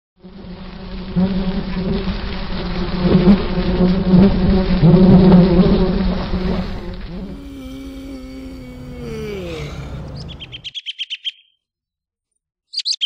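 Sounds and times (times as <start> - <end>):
fly buzzing: 2.9 - 10.6.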